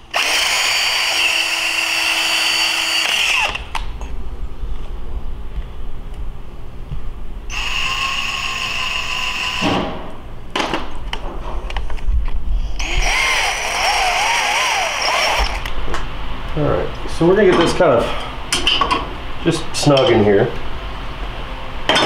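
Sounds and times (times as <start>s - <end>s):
cordless drill motor whine: 0.0s - 3.8s, 7.5s - 9.8s, 12.8s - 15.7s
drill clicks: 0.1s - 3.9s, 7.5s - 9.7s, 12.8s - 15.8s.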